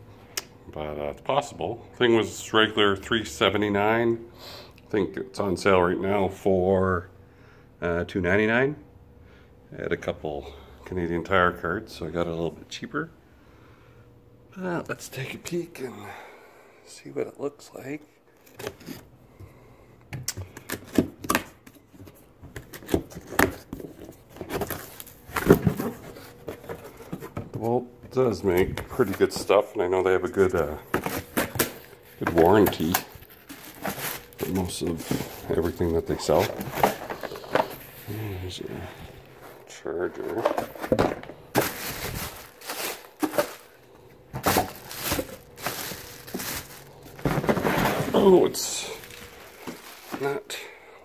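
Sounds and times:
plastic wrapping crinkling: 0:24.2 - 0:27.1, 0:30.8 - 0:38.1, 0:39.1 - 0:50.6
cardboard box rustling: 0:30.9 - 0:37.8, 0:39.3 - 0:50.5
cardboard box being opened: 0:44.4 - 0:50.3.

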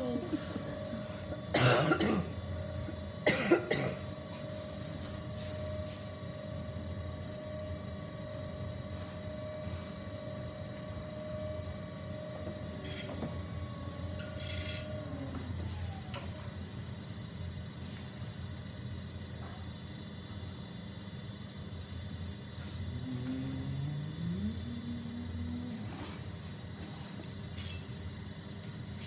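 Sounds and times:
potter's wheel motor whine: 0:00.0 - 0:29.0
person coughing: 0:01.5 - 0:02.3, 0:03.2 - 0:04.1.

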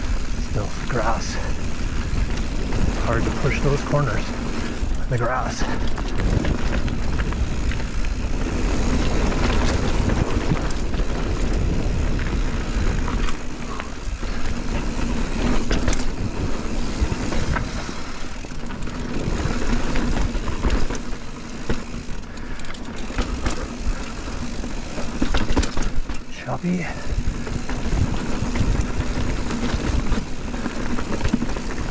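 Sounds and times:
bike rattling and clicking: 0:00.0 - 0:31.9
tyres on dirt: 0:00.0 - 0:31.9
wind rumble on microphone: 0:04.7 - 0:20.7, 0:26.9 - 0:31.9.

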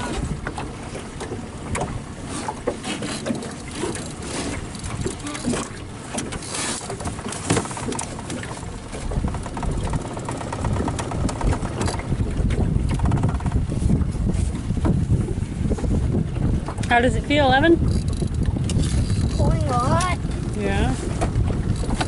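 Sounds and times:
water slapping against boat: 0:00.0 - 0:22.0
wind buffeting microphone: 0:00.0 - 0:22.0
fishing reel clicking: 0:17.9 - 0:19.4.

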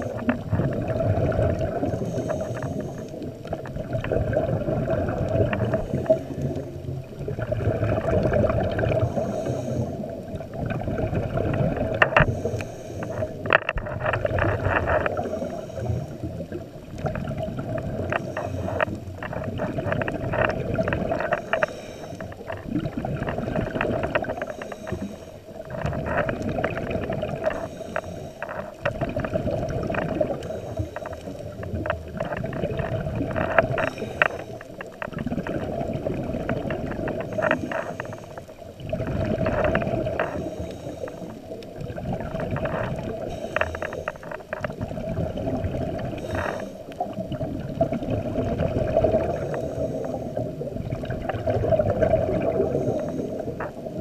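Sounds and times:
diver breathing through regulator: 0:00.0 - 0:03.4, 0:08.0 - 0:10.5, 0:11.8 - 0:16.6, 0:17.7 - 0:28.9, 0:29.8 - 0:31.8, 0:32.8 - 0:41.6, 0:42.2 - 0:44.6, 0:45.7 - 0:47.1, 0:48.8 - 0:50.7, 0:51.7 - 0:54.0
bubbly crackling exhalations: 0:00.0 - 0:54.0.

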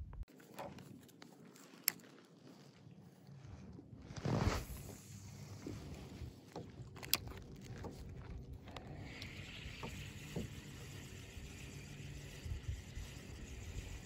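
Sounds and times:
waves lapping against a hull: 0:04.6 - 0:14.0.

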